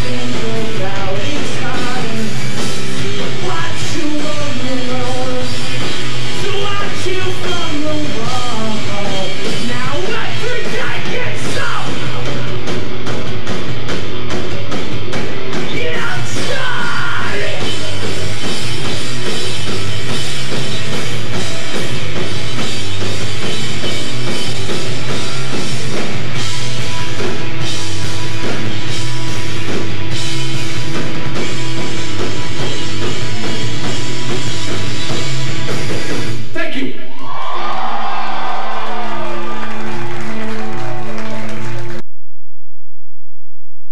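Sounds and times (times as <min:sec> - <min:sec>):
person singing: 0:00.0 - 0:05.8, 0:06.4 - 0:12.4, 0:15.7 - 0:18.1
live rock band playing: 0:00.0 - 0:36.6.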